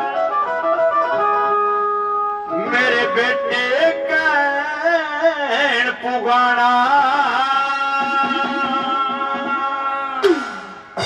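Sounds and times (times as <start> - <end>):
instrumental accompaniment: 0.0 - 11.0
man singing folk song: 2.5 - 10.2.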